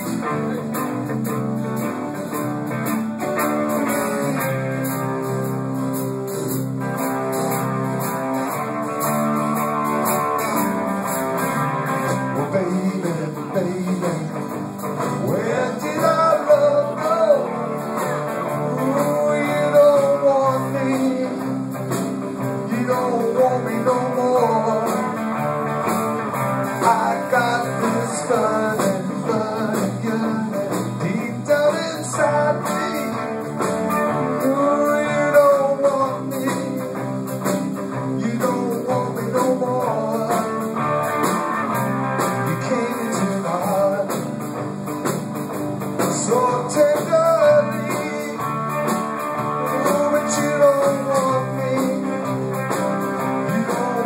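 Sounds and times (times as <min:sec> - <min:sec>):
live blues-rock band playing: 0:00.0 - 0:54.0
person singing: 0:12.3 - 0:14.5, 0:15.2 - 0:21.6, 0:22.6 - 0:25.2, 0:26.8 - 0:33.4, 0:34.2 - 0:37.1, 0:38.0 - 0:40.7, 0:42.4 - 0:44.3, 0:46.0 - 0:48.8, 0:49.5 - 0:52.4, 0:53.2 - 0:54.0.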